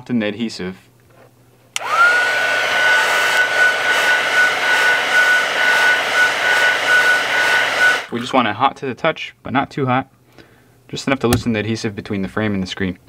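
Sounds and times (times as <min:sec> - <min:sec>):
blown air rushing: 0:01.8 - 0:08.1
heat gun fan whine: 0:01.8 - 0:08.1.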